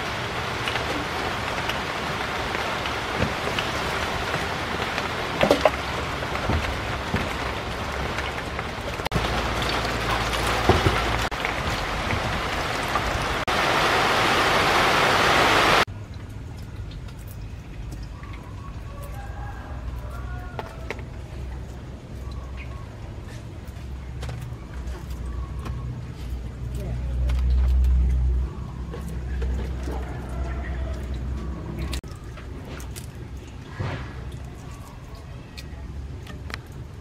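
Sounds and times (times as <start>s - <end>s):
steady rain hissing: 0.0s - 15.9s.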